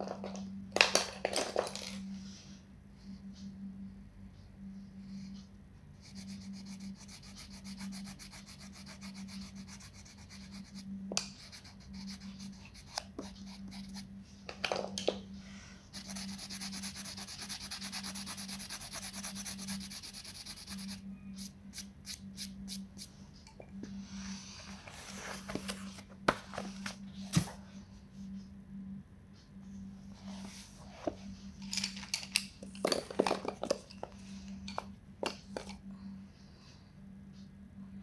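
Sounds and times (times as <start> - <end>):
crayon scribbling on paper: 6.0 - 14.0, 15.9 - 21.0.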